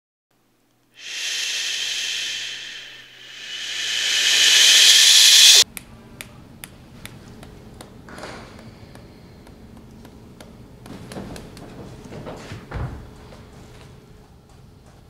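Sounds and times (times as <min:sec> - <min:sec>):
person shushing: 0:01.0 - 0:05.6.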